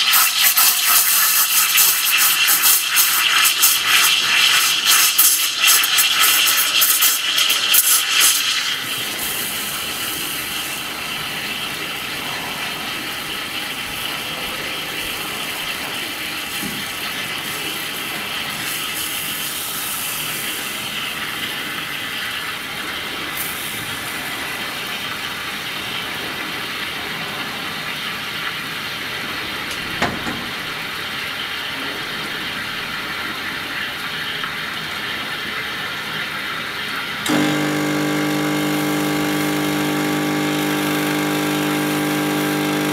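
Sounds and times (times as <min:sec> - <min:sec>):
low buzzing hum: 0:37.3 - 0:42.9.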